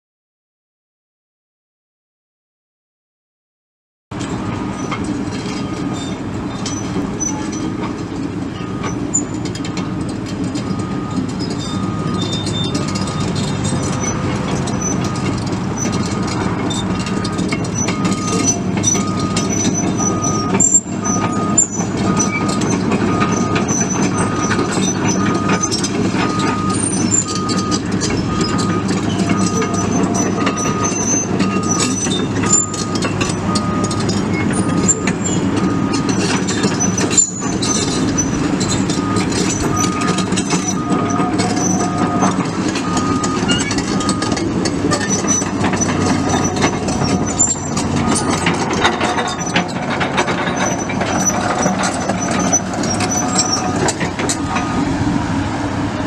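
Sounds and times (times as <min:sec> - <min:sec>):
metal clanks: 0:04.2 - 0:54.9
excavator diesel engine running: 0:04.2 - 0:56.0
warning alarm beeping: 0:39.0 - 0:44.4.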